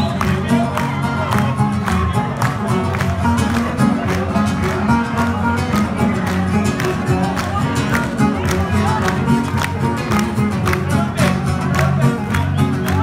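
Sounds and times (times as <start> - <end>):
plucked string instruments: 0.0 - 13.0.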